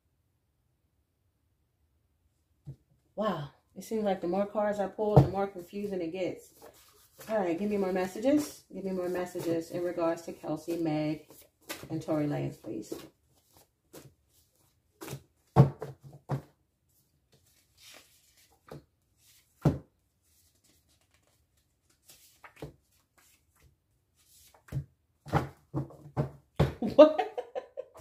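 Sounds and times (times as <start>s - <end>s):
paper cards tapping and rustling: 5.1s - 16.5s, 17.3s - 26.9s.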